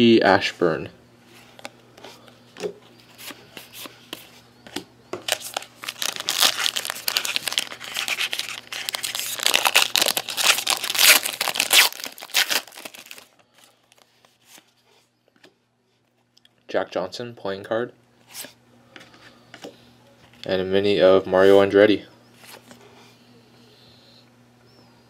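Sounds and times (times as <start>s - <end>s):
wrapper tearing and crinkling: 5.3s - 13.3s.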